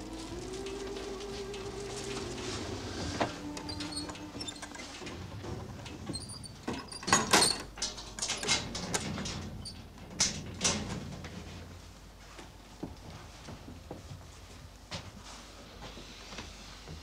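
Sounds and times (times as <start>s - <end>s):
low steady hum: 0.0s - 14.9s
door scraping clicking and squeaking: 1.5s - 11.2s.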